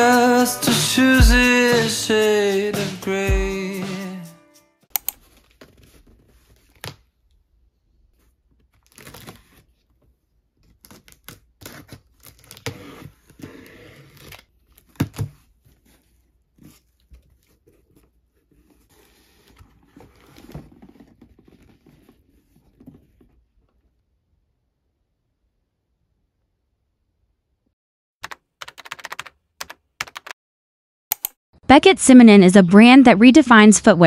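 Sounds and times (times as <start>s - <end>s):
blade slitting packing tape: 8.8s - 9.6s, 10.7s - 15.4s
cardboard scraping and tearing: 8.8s - 9.9s, 10.7s - 23.4s.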